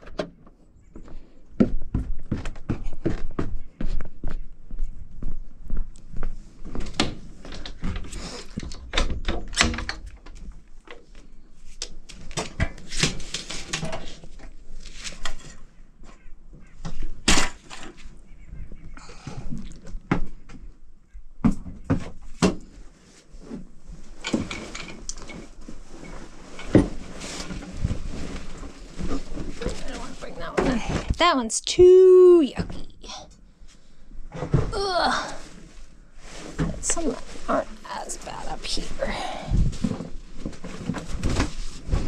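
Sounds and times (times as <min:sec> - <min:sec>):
footsteps on metal floor: 0:00.8 - 0:06.8.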